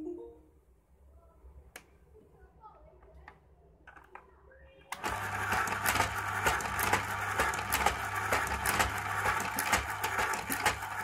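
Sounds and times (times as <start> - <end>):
tape dispenser motor humming: 5.0 - 11.0.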